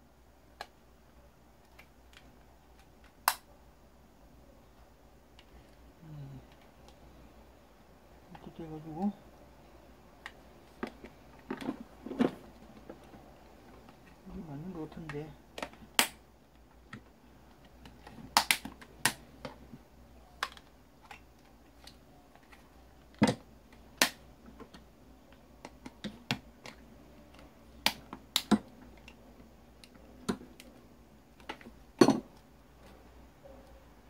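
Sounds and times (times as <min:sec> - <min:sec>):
clicks and knocks of plastic parts: 0:10.2 - 0:14.2, 0:20.4 - 0:29.2, 0:29.8 - 0:32.4.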